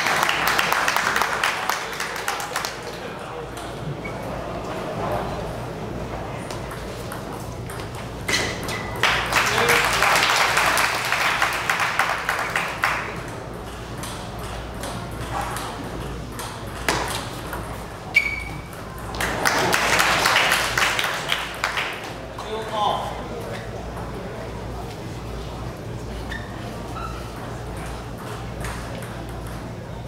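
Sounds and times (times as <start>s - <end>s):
crowd clapping: 0.0s - 3.0s, 9.0s - 13.3s, 19.1s - 22.2s.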